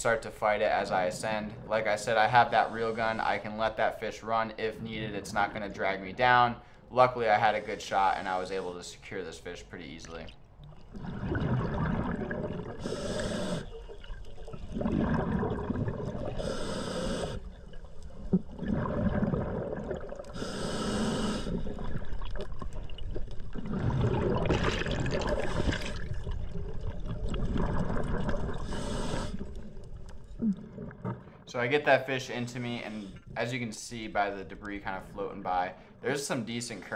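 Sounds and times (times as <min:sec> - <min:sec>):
rush of bubbles: 0:10.9 - 0:13.0, 0:13.6 - 0:16.5, 0:18.2 - 0:20.4, 0:21.6 - 0:29.6
regulator breath hiss: 0:12.8 - 0:13.8, 0:16.4 - 0:17.4, 0:20.4 - 0:21.6.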